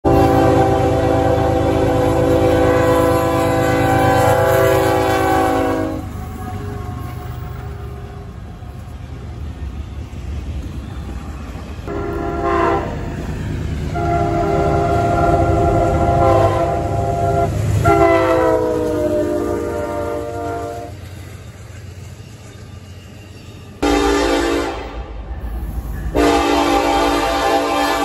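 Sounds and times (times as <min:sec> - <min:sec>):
locomotive air horn: 0:00.0 - 0:08.2, 0:11.9 - 0:13.1, 0:13.9 - 0:21.0, 0:23.8 - 0:25.1, 0:26.1 - 0:28.0
passing train rumble: 0:00.0 - 0:28.0.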